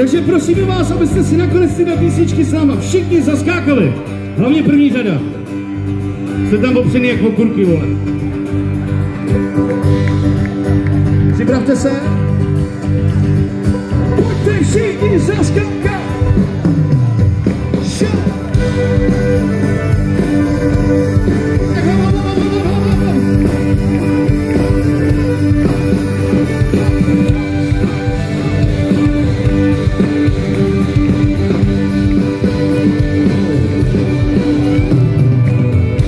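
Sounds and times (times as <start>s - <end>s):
folk-rock band playing: 0.0s - 36.0s
person singing: 21.6s - 23.6s.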